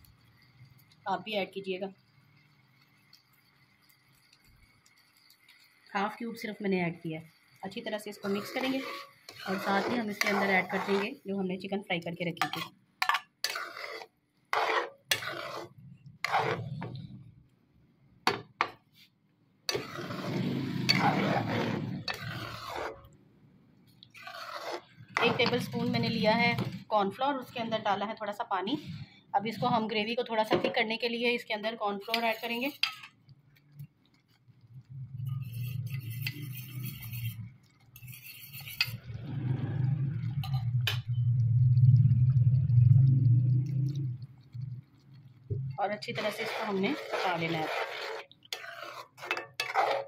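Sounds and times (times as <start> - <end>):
metal spoon scraping in pot: 7.3 - 11.4, 12.3 - 17.2, 19.7 - 23.1, 24.0 - 26.9, 31.9 - 33.2, 35.1 - 41.2, 45.7 - 50.0
low hum: 39.0 - 45.8.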